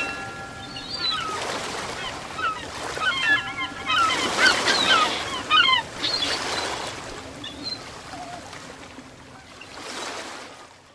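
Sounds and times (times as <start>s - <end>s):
bird chirps: 0.0s - 6.7s
water rushing: 0.0s - 10.5s.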